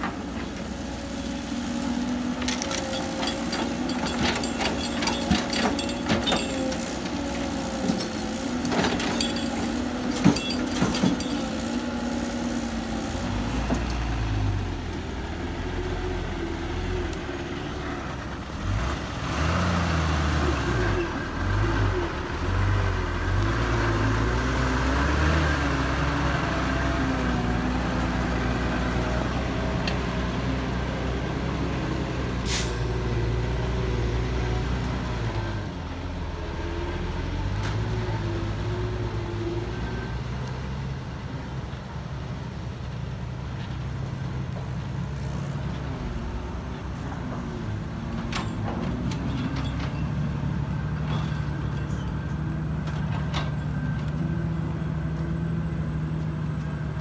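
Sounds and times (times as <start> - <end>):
excavator machine hum: 0.0 - 57.0
diesel truck engine revving: 11.2 - 42.5
short sharp hiss: 32.4 - 32.8.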